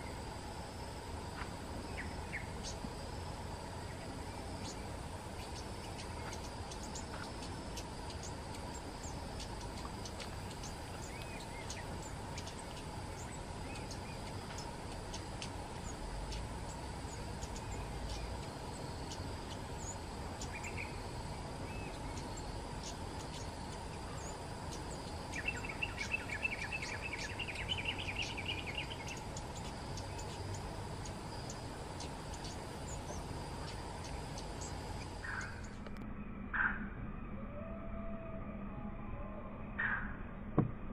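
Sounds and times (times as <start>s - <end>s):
insects droning: 0.0s - 40.8s
bird calling with sharp ticks: 5.4s - 21.0s, 21.7s - 36.0s.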